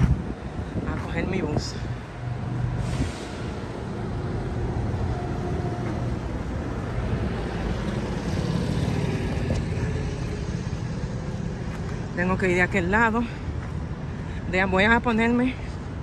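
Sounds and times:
street traffic rumble: 0.0 - 16.0
utility vehicle passing: 1.7 - 12.2.

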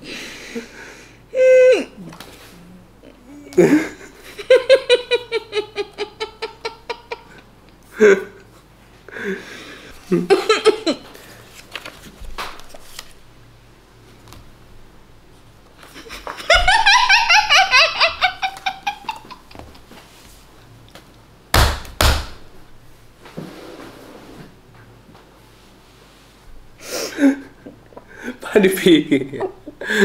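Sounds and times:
person laughing with mouthful of water: 16.0 - 19.6.

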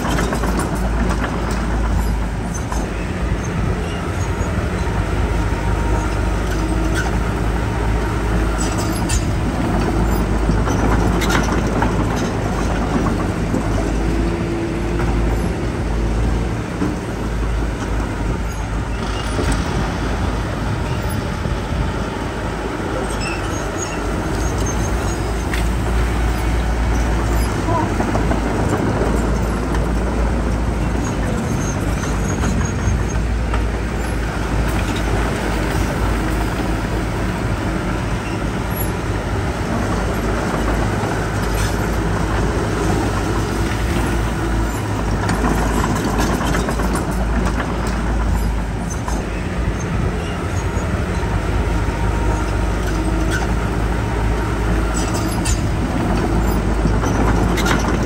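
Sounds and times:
diesel engines running: 0.0 - 58.0
machinery clanks: 8.3 - 58.0.

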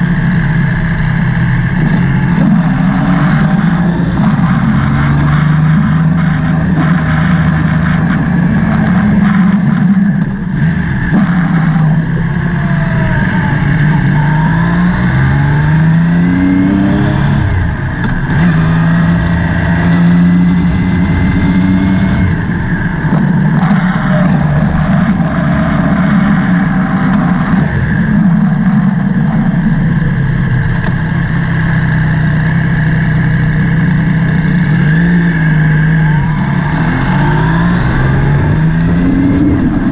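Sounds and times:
motorcycle engine accelerating: 0.0 - 39.9
wind noise on microphone: 32.4 - 39.9.

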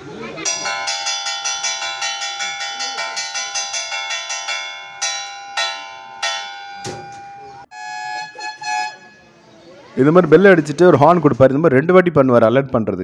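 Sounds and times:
alert bell ringing: 0.5 - 9.2.

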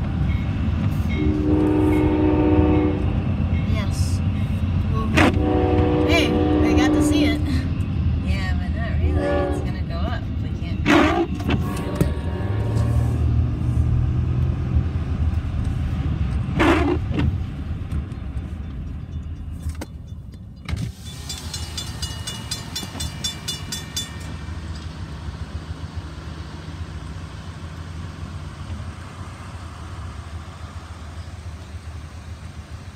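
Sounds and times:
railroad crossing bell ringing: 0.0 - 4.5, 18.4 - 25.4.

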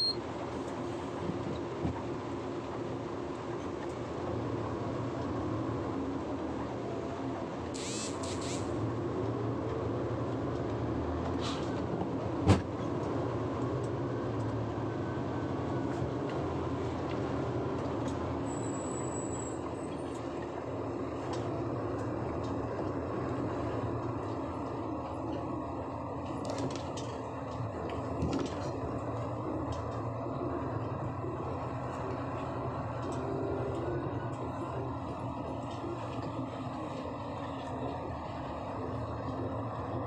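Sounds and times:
truck engine and road noise: 0.0 - 40.0.

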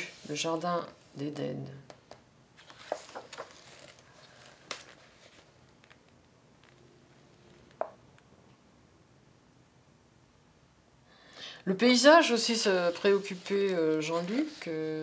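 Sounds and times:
book pages turning: 2.6 - 7.8, 12.8 - 15.0.

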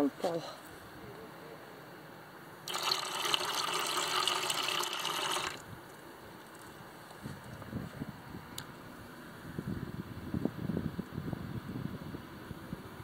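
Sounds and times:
water running into plastic bucket: 2.7 - 5.7.

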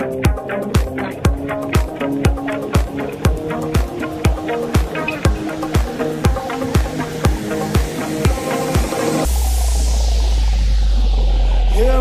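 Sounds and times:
dance music: 0.0 - 12.0.

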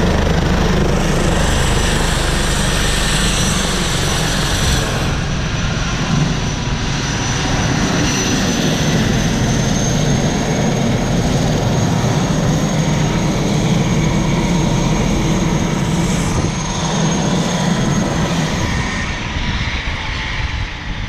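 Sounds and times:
helicopter low rumble: 0.0 - 21.0
helicopter turbine whine: 0.0 - 21.0.

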